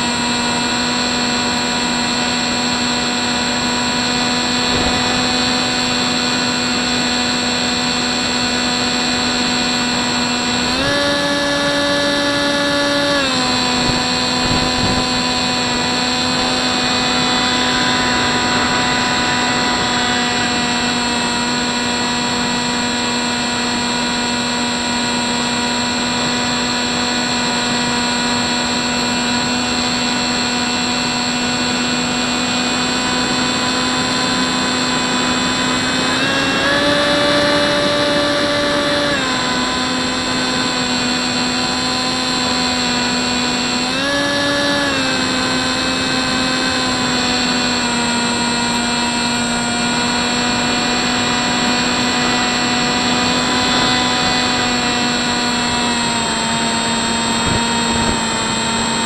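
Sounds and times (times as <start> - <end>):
model plane propeller whining: 0.0 - 59.0.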